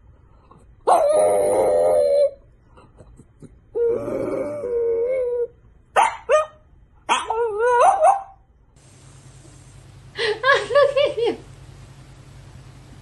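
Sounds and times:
dog howling: 0.9s - 2.4s
dog yelping: 0.9s - 2.4s, 5.0s - 8.4s.

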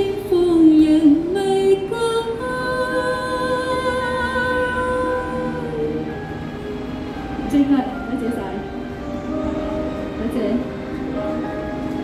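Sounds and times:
woman singing pop ballad: 0.0s - 6.1s.

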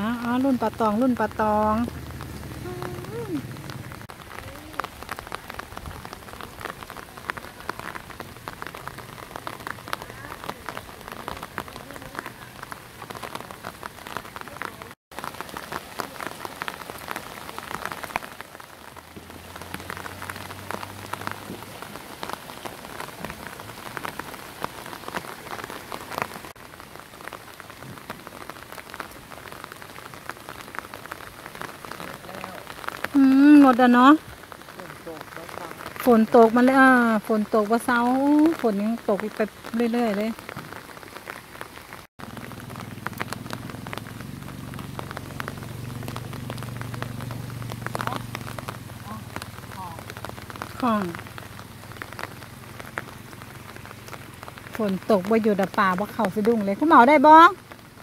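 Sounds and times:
rain falling on water: 0.0s - 58.0s.

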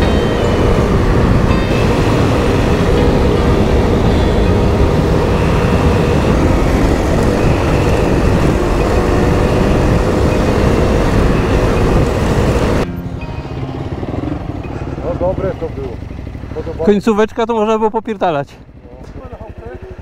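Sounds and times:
wind rush on microphone: 0.0s - 12.8s
motorcycle engine running: 0.0s - 20.0s.

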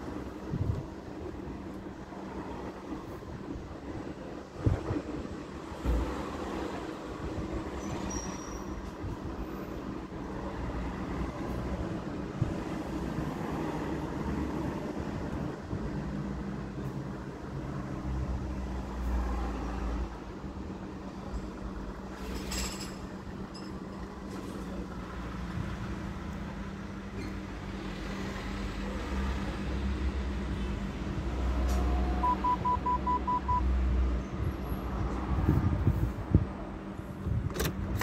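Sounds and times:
short electronic beeps: 32.2s - 33.7s.

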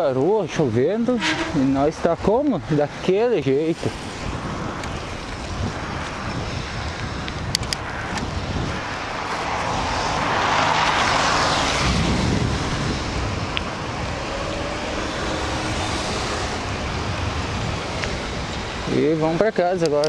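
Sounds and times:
wind rush on microphone: 0.0s - 20.0s
car tyres hissing on wet road: 8.8s - 19.4s.

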